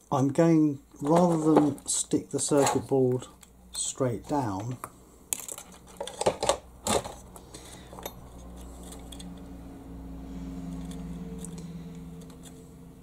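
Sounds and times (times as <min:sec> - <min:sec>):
plastic clicks and rustles: 0:04.5 - 0:09.4.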